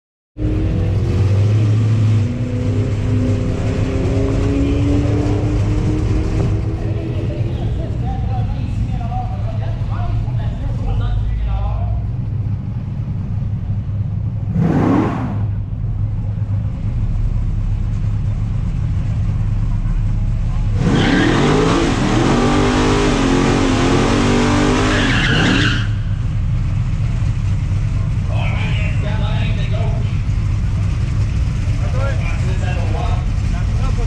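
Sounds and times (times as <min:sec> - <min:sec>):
car engine revving: 0:00.4 - 0:11.4, 0:12.0 - 0:34.0
car engine idling: 0:02.9 - 0:20.8, 0:25.1 - 0:34.0.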